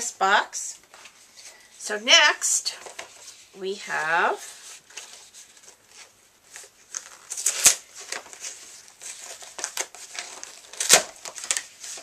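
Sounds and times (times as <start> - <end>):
paper envelope crinkling and tearing: 4.5 - 12.0.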